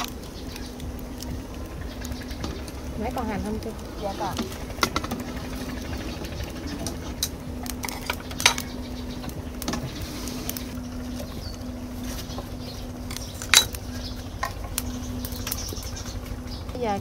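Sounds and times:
utensils clinking on pots: 2.3 - 11.3, 13.0 - 17.0.

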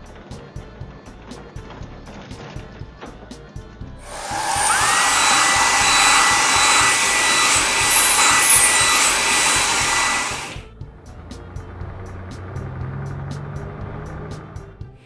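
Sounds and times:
blower dryer air rush with whine: 4.0 - 10.7.

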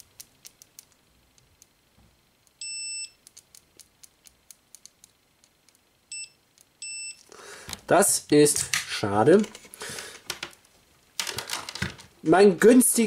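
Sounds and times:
multimeter probes clicking: 0.0 - 1.8, 3.2 - 5.9
multimeter short high beep: 2.6 - 3.2, 6.1 - 7.2.

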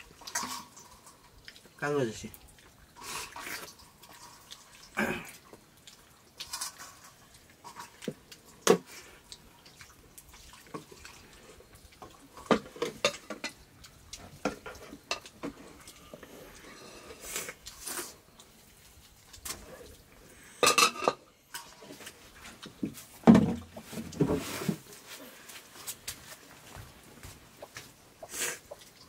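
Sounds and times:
clinks and scrapes on steel plates: 12.5 - 13.6, 20.6 - 21.7.

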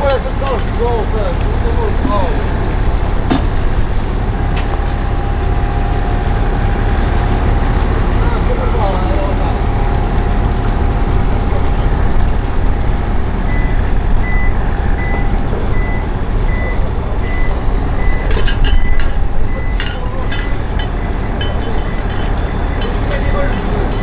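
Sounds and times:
low engine rumble: 0.0 - 24.0
sharp metallic clanks: 18.3 - 24.0.

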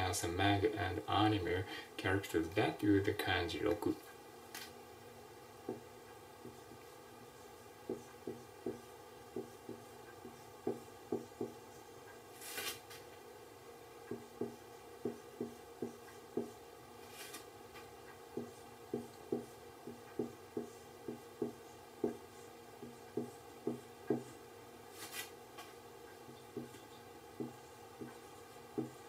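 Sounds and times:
marker writing on whiteboard: 5.6 - 12.6, 14.0 - 24.4, 26.1 - 29.0.

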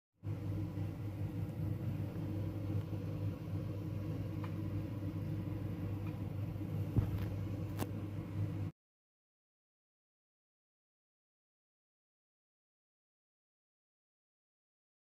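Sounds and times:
low background hum: 0.2 - 8.7.

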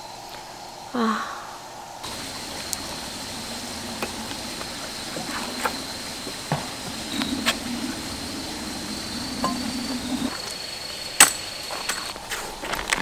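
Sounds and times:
steady low hum: 1.6 - 12.3
footsteps on wooden deck: 2.1 - 10.4.

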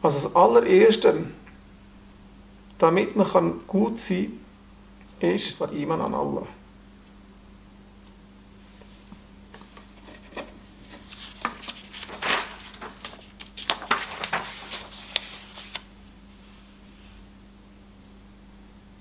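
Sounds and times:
paper rustling and shuffling: 8.9 - 16.0.

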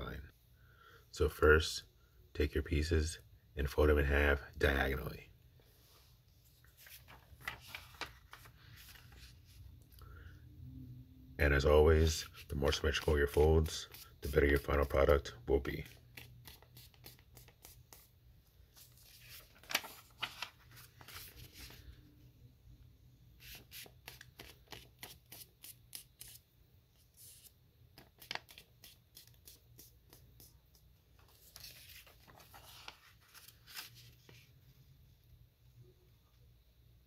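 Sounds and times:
paper rustling and crinkling: 6.5 - 9.6, 18.7 - 22.0, 27.2 - 29.6, 31.1 - 34.5.

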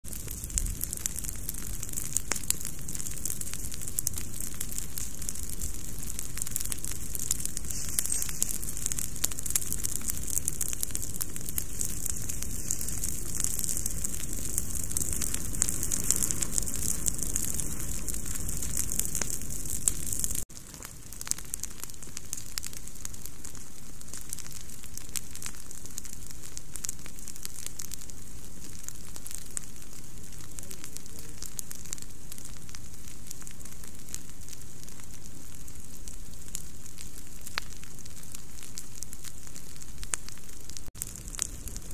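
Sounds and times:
leaf litter fire crackling: 0.0 - 41.9.

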